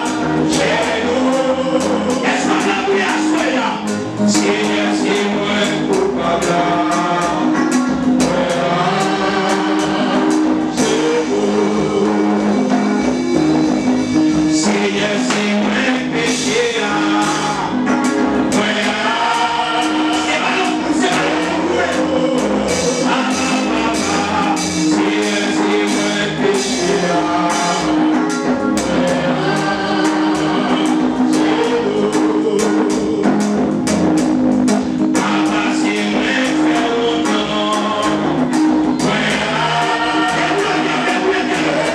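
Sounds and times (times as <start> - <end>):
man singing into a microphone: 0.0 - 12.8, 14.6 - 28.3, 35.0 - 38.4, 39.0 - 41.9
other voices singing: 0.0 - 34.1, 34.8 - 41.9
band accompaniment: 0.0 - 41.9.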